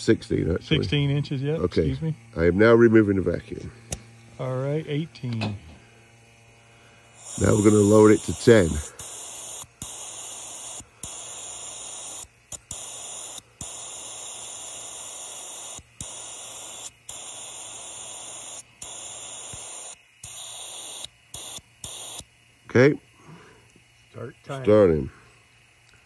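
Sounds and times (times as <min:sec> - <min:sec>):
air hissing through a valve: 0:06.8 - 0:25.4.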